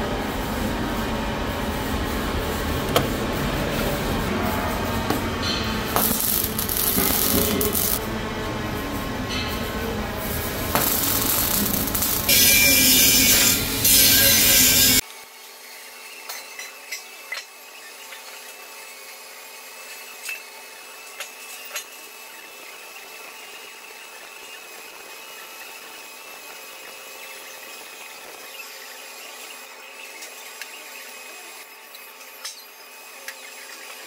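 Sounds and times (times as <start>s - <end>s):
welding arc buzzing hiss: 0.0s - 15.0s
spatter crackles: 5.9s - 8.0s, 10.4s - 12.9s.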